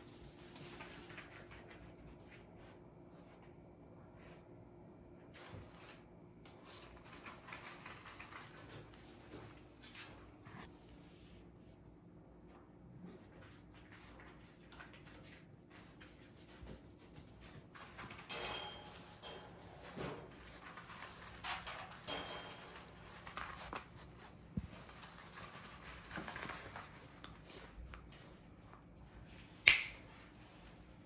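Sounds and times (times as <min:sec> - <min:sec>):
metallic jingle: 0:18.3 - 0:19.9.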